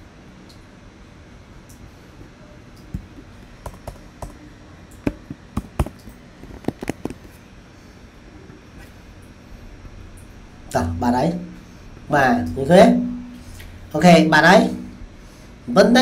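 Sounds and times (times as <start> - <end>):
typing on a keyboard: 3.6 - 4.4.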